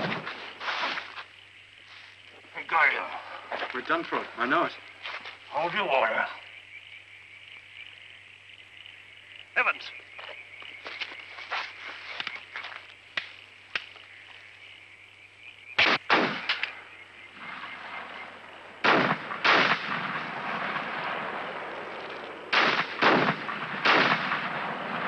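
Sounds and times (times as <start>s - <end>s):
musket shots: 15.8s - 16.8s, 18.8s - 25.0s.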